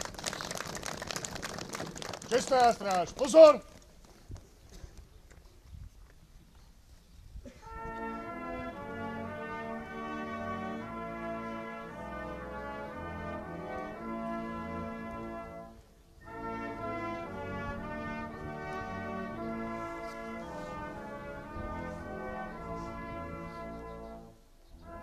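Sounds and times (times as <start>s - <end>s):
brass band playing: 7.6s - 25.0s.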